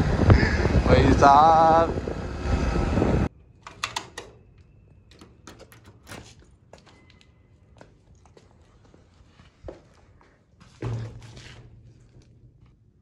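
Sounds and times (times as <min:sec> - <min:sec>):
loud wind noise: 0:00.0 - 0:04.4
door clicks and knocks: 0:03.6 - 0:06.4.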